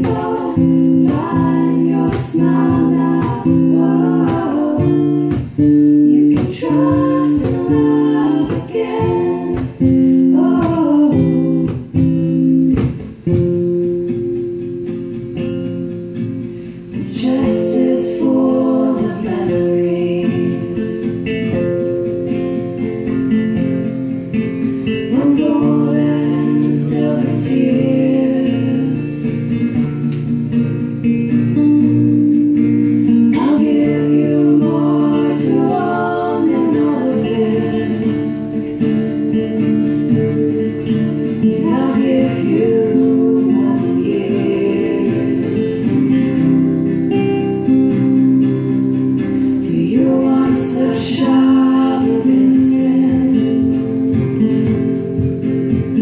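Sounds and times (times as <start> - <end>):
women singing in harmony: 0.0 - 12.7, 16.8 - 21.7, 24.3 - 29.9, 32.8 - 54.9
acoustic guitars strumming: 0.0 - 56.0.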